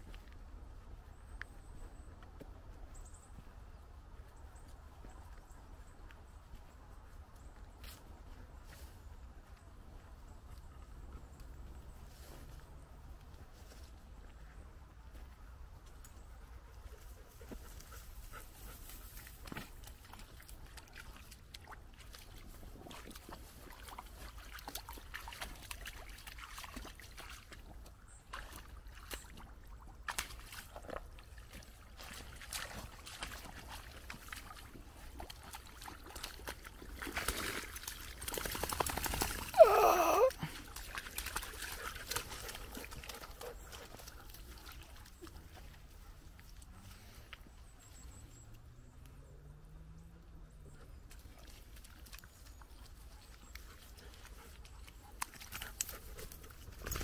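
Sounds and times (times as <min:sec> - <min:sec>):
dog splashing in a puddle: 0:18.5 - 0:47.4, 0:50.9 - 0:57.0
loud cry falling in pitch: 0:39.6 - 0:40.3.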